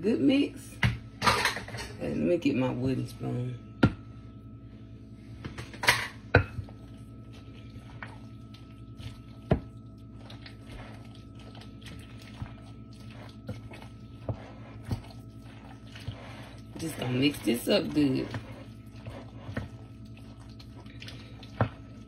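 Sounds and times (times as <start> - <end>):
wet squishing and scraping: 6.6 - 22.0.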